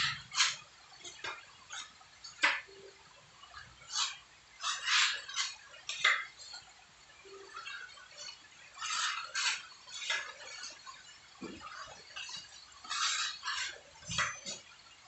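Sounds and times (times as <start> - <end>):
putty knife scraping wall: 3.9 - 6.2, 8.8 - 10.8, 11.8 - 14.6.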